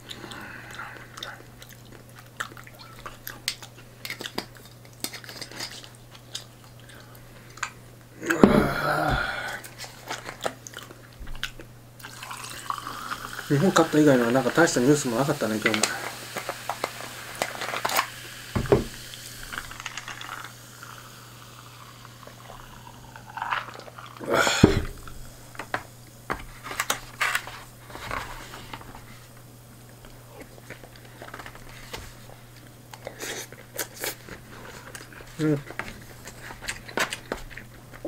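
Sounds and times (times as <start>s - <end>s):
chewing close to microphone: 0.0s - 7.8s, 9.6s - 12.5s, 32.6s - 38.0s
low steady hum: 0.0s - 38.0s
sipping iced drink: 12.0s - 13.8s
knock on table: 18.6s - 19.0s.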